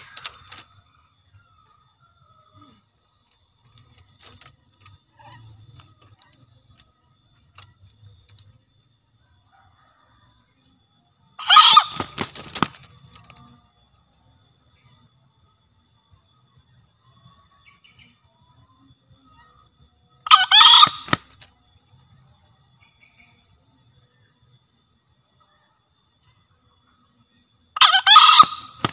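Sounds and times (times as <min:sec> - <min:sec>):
junglefowl crowing: 0:11.4 - 0:12.8, 0:20.2 - 0:21.4, 0:27.8 - 0:28.9.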